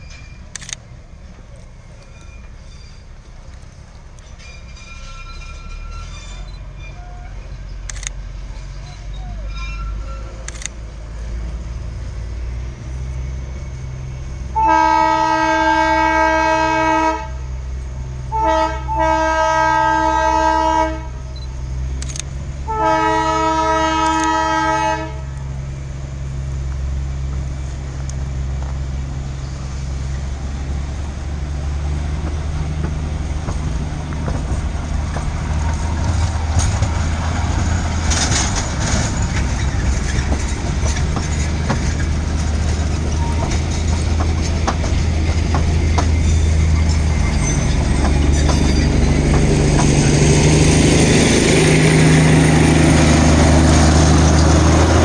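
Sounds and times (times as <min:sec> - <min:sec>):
train rumbling: 0:00.0 - 0:55.0
train horn blasts: 0:14.5 - 0:17.6, 0:18.3 - 0:21.3, 0:22.6 - 0:25.4.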